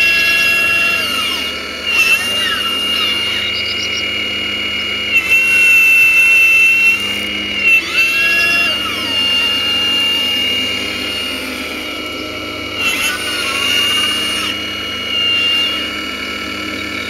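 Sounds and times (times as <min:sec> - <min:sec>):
electric motor whining: 0:00.0 - 0:17.0.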